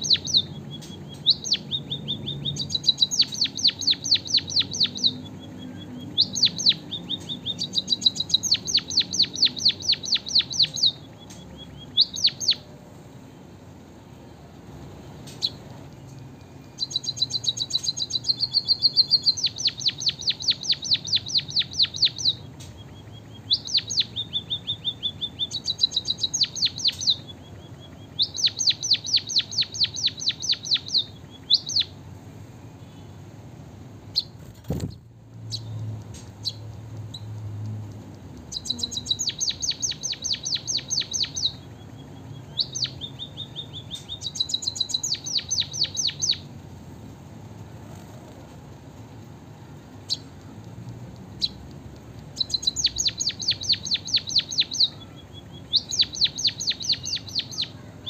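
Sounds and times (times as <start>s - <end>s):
bird singing high trills: 0.0s - 12.7s, 15.2s - 32.0s, 38.5s - 46.5s, 52.3s - 58.0s.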